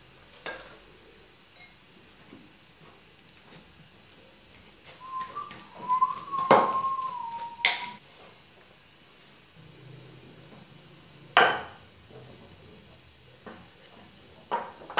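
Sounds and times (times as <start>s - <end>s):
thin steady whistling tone: 4.9s - 8.0s.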